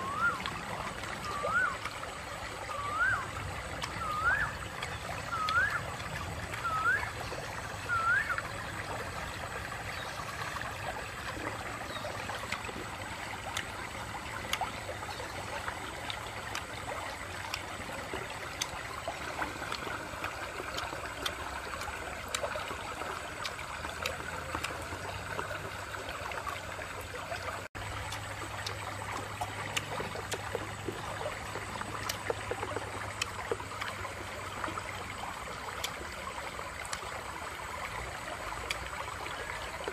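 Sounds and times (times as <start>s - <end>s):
stream trickling over rocks: 0.0s - 39.9s.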